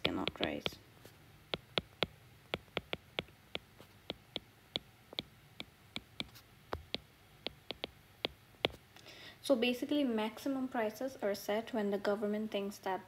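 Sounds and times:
stylus tapping on glass screen: 0.0s - 0.8s, 1.5s - 8.8s.

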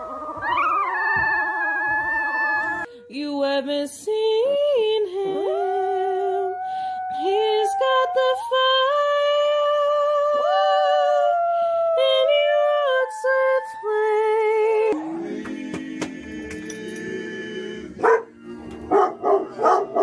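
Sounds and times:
small dog howling: 0.0s - 2.9s, 5.2s - 15.0s.

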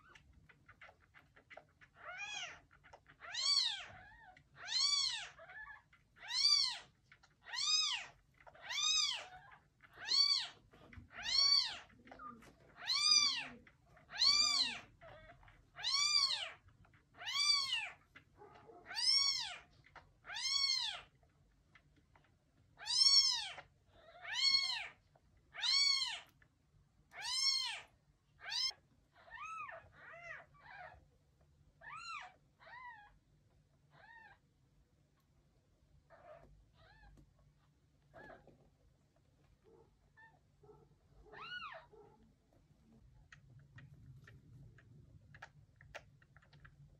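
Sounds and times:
kitten mewing: 11.2s - 15.2s.

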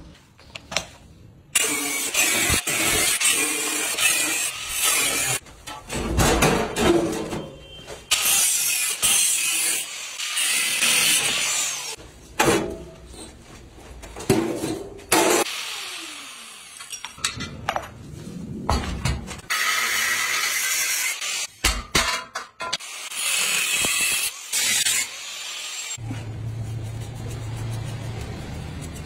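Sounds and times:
angle grinder grinding metal: 1.6s - 5.4s, 8.1s - 12.0s, 22.8s - 26.0s.

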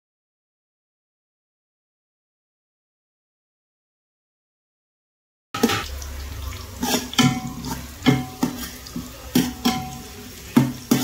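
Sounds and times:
spatula scraping a pan: 5.6s - 5.9s, 6.8s - 11.0s
onions sizzling in oil: 5.6s - 11.0s.

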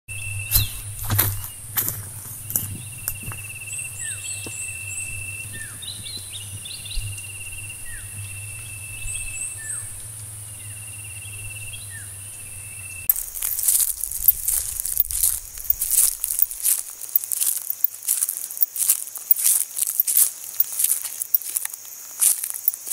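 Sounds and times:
high insect hiss: 0.4s - 22.9s
pulsing insect trill: 2.4s - 22.9s
tiny high chirps: 13.0s - 22.9s
dry leaves rustling: 13.1s - 22.9s.

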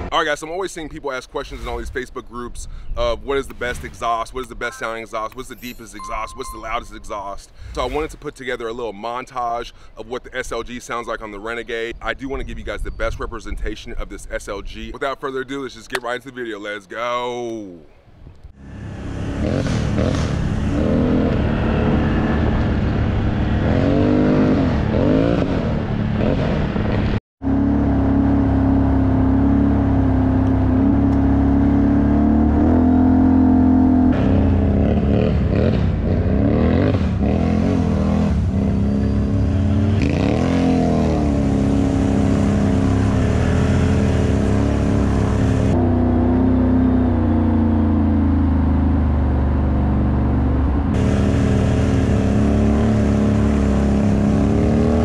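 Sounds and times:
atv engine revving: 18.6s - 55.0s.

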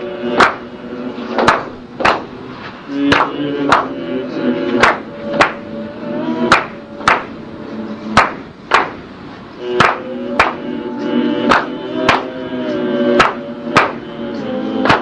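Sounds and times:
sharp drum strokes in pairs: 9.7s - 10.7s, 13.2s - 14.1s.

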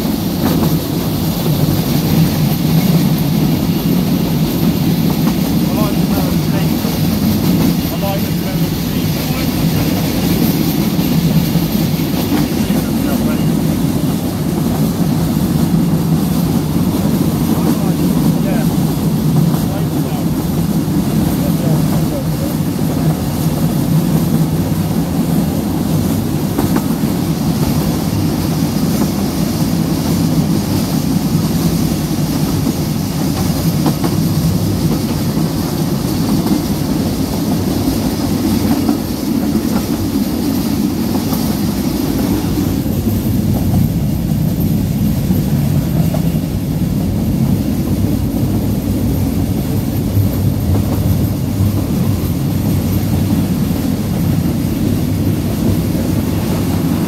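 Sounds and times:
faint clicks from train wheels: 0.0s - 57.0s
train carriage rumble and rattle: 0.0s - 57.0s.

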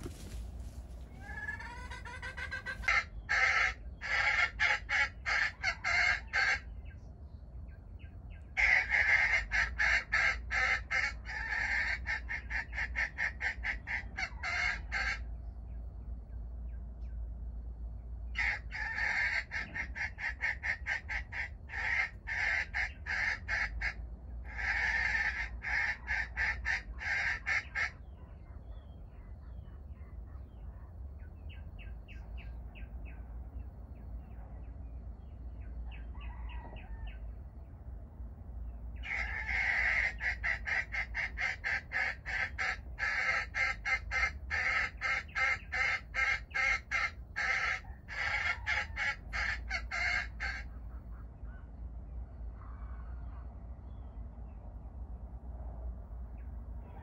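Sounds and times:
junglefowl rapid clucking: 0.0s - 6.7s, 8.5s - 15.3s, 18.3s - 33.3s, 35.6s - 37.3s, 39.0s - 51.7s.

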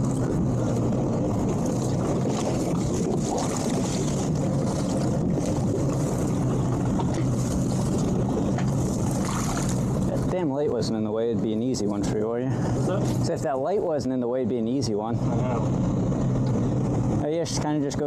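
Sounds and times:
outboard engine idling: 0.0s - 18.0s
wind noise on microphone: 0.0s - 18.0s.

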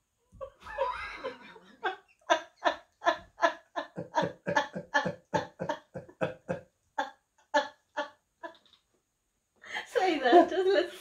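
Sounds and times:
man and woman laughing: 0.4s - 6.6s.

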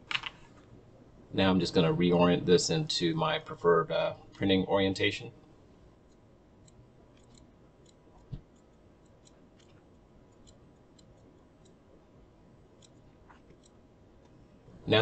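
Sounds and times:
computer mouse clicks: 6.0s - 11.8s, 12.8s - 14.4s.

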